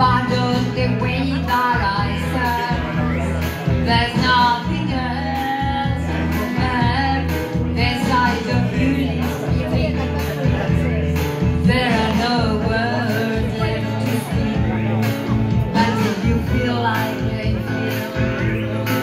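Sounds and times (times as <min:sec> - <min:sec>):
amplified musical accompaniment: 0:00.0 - 0:19.0
woman singing into microphone: 0:00.0 - 0:19.0.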